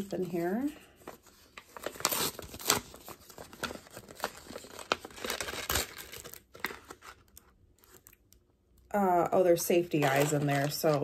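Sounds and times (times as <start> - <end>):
paper envelope crinkling: 0.2 - 8.2.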